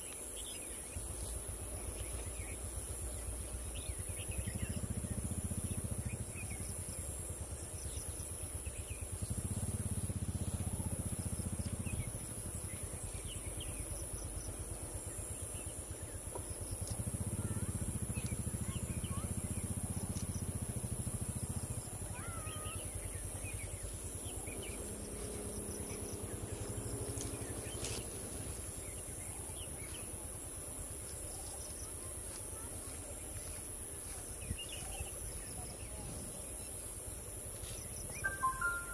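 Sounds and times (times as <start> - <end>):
high insect drone: 0.0 - 38.9
vehicle engine idling: 0.6 - 38.9
short bird chirps: 38.1 - 38.9.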